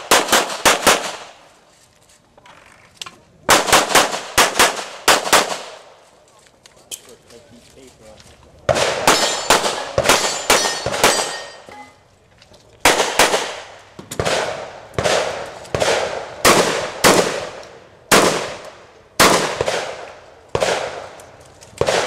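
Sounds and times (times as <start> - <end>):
gunshots with echo: 8.7 - 11.6, 12.9 - 18.6, 19.2 - 21.2, 21.8 - 22.0.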